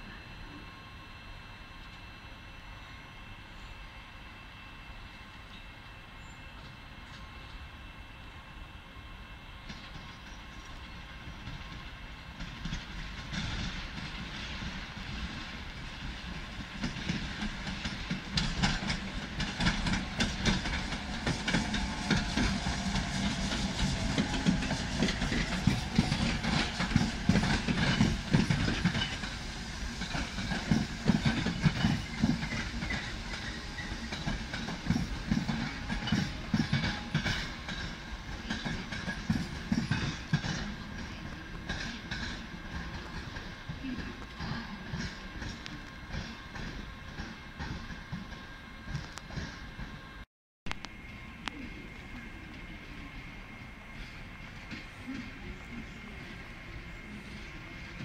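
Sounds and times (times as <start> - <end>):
train passing: 0.0 - 50.2, 50.8 - 58.0
wheels clacking over rail joints: 12.4 - 49.6.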